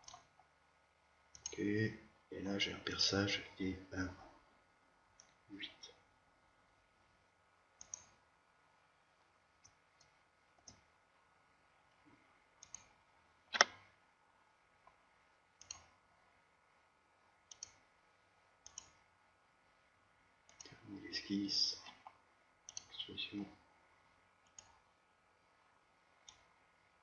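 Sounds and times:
computer mouse clicks: 0.0 - 0.5, 1.3 - 1.6, 5.2 - 5.4, 7.8 - 8.2, 9.6 - 10.9, 12.6 - 13.8, 15.6 - 16.0, 17.5 - 17.8, 18.6 - 19.0, 20.5 - 20.8, 21.9 - 23.0, 24.4 - 24.8, 26.2 - 26.5.

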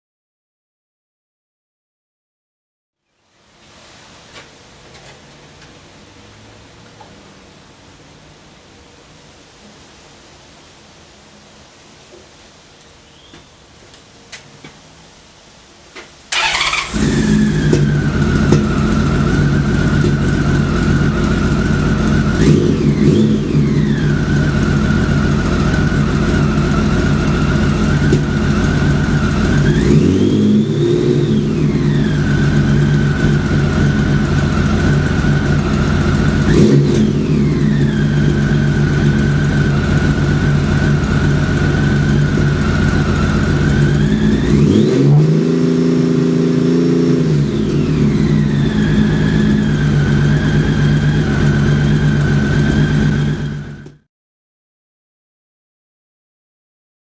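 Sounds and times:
motorcycle engine idling and revving: 16.4 - 54.1.

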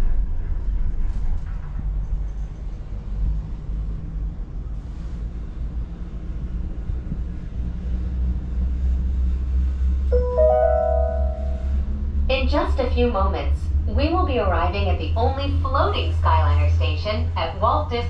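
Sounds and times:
gondola cabin rumble: 0.0 - 10.1, 11.3 - 18.0
held musical tones: 10.1 - 11.9.

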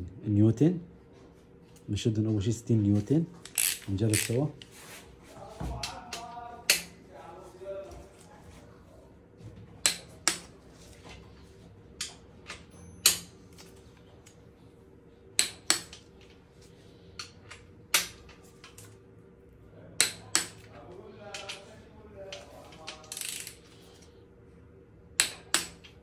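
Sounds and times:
torque wrench clicking: 3.4 - 4.4, 23.0 - 23.6.

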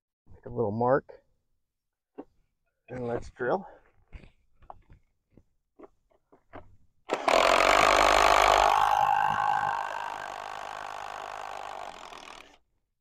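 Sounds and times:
cordless drill boring wood: 7.1 - 12.6.

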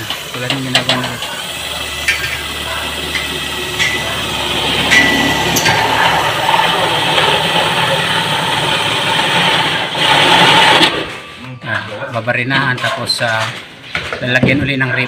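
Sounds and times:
cordless drill drilling steel: 0.0 - 11.0.

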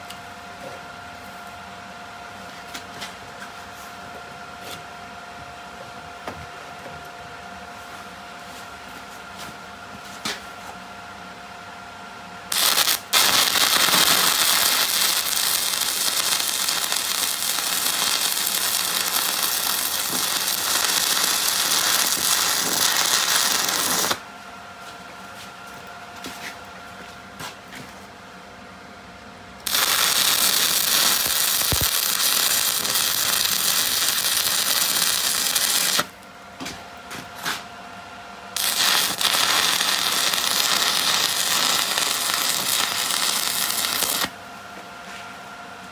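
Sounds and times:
arc welding hiss: 12.5 - 24.2, 29.6 - 36.1, 38.6 - 44.3.

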